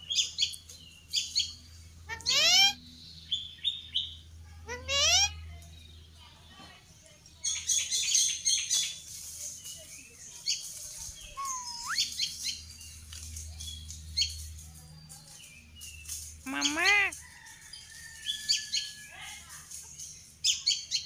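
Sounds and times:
parakeets chirping: 0:02.1 - 0:02.8, 0:11.4 - 0:12.1, 0:16.5 - 0:17.1
loud wavering parakeet call: 0:02.2 - 0:02.8, 0:11.4 - 0:12.1, 0:16.5 - 0:17.1
parakeet whistle sliding upward: 0:11.4 - 0:12.0.

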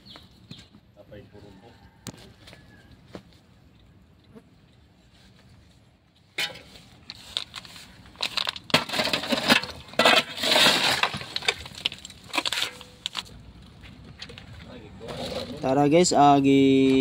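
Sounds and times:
shovel scraping through rubble: 0:06.4 - 0:13.3, 0:15.0 - 0:15.7
stones clinking and crunching: 0:07.0 - 0:15.6.

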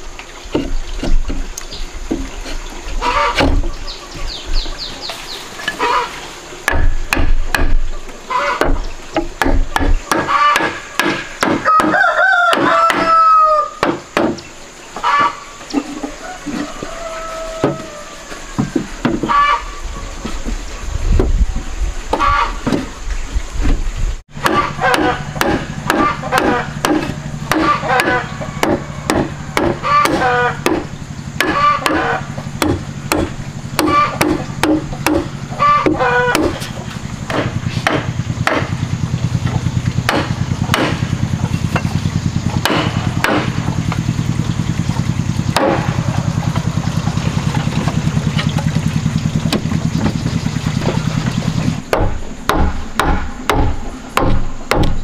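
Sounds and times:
low hum with rapid ticking: 0:24.4 - 0:55.0
mallet knocking wooden panels: 0:45.6 - 0:46.0, 0:51.9 - 0:55.0.

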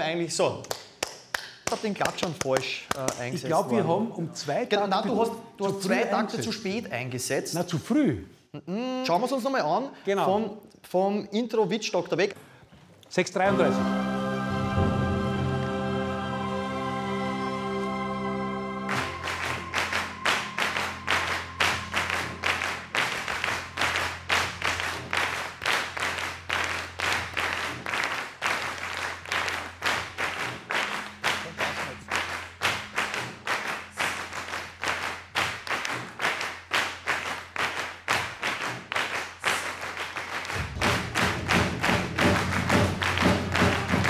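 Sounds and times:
hands clapping: 0:00.4 - 0:03.8, 0:18.9 - 0:44.0.

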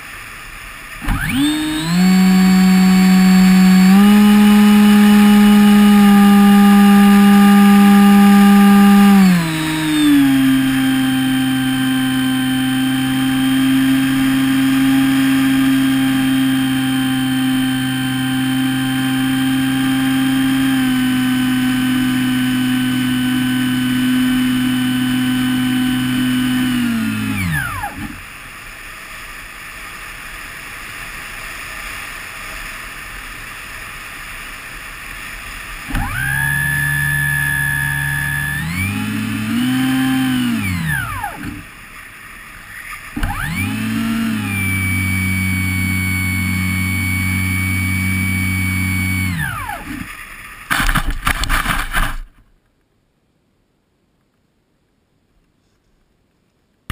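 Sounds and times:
model plane electric motor and propeller: 0:00.0 - 0:52.3.

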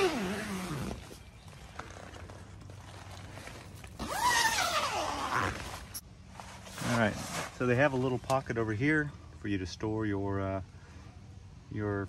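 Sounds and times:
tent zipper rasping: 0:00.0 - 0:07.7.

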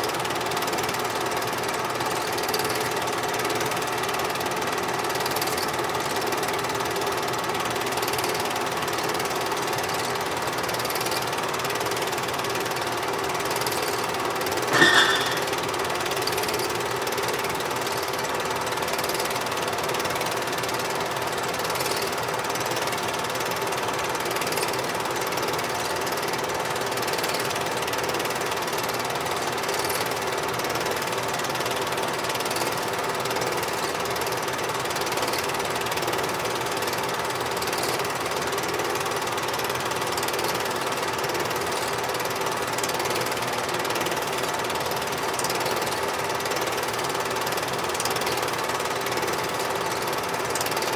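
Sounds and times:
film projector whirring: 0:00.0 - 0:50.9
projector hum: 0:14.7 - 0:15.8.

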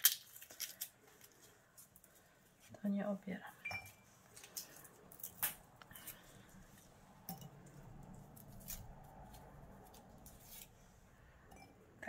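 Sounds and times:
garlic skin crackling: 0:00.0 - 0:02.2, 0:04.2 - 0:06.5, 0:08.0 - 0:10.8.

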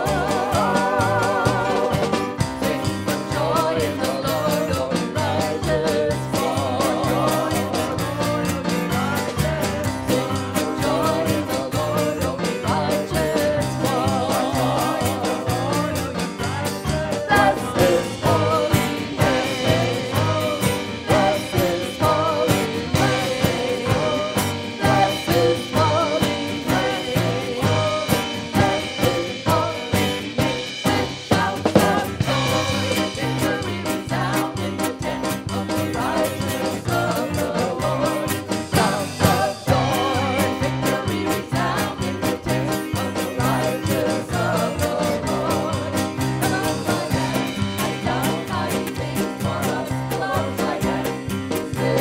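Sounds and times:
person singing: 0:00.0 - 0:02.3, 0:02.9 - 0:50.8
instrumental band: 0:00.0 - 0:52.0.

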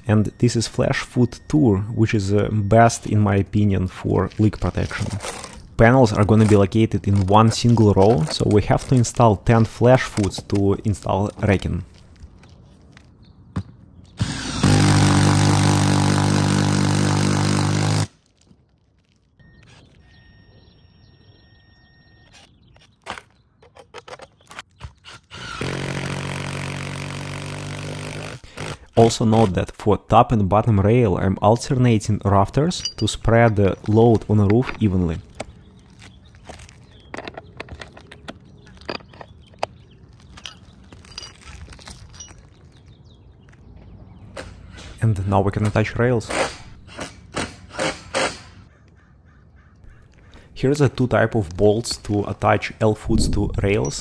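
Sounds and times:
battery-powered driver running: 0:14.2 - 0:18.1.

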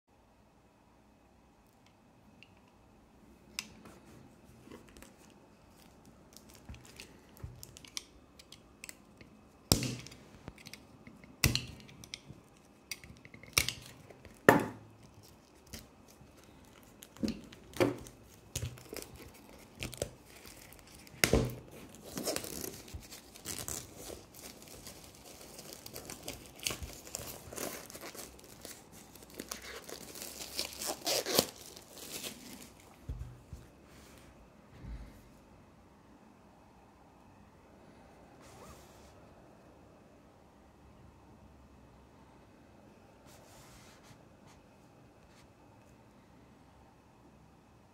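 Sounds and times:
plastic wrap crinkling and tearing: 0:04.8 - 0:08.1, 0:12.4 - 0:33.2.

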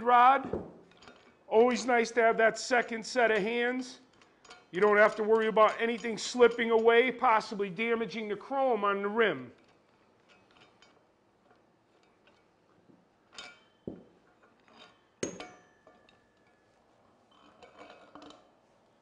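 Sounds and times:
metal parts clinking and knocking: 0:00.5 - 0:01.9, 0:03.3 - 0:07.5, 0:09.6 - 0:18.6.

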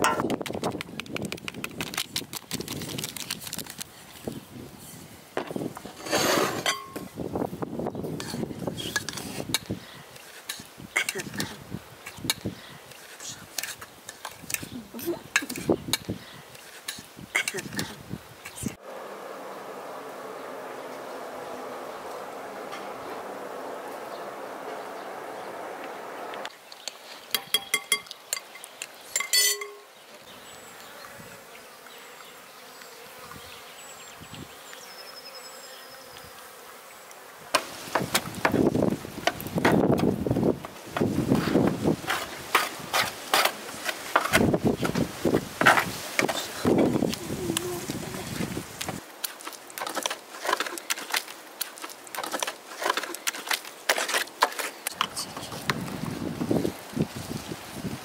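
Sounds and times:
honeybees humming: 0:18.5 - 0:26.5, 0:28.5 - 0:51.6
clinks against a glass bowl: 0:27.4 - 0:29.9
ringing knock on glass bowl: 0:29.2 - 0:29.9
hand smearing wet clay: 0:45.8 - 0:55.8
trowel stirring wet clay: 0:49.2 - 0:55.7.

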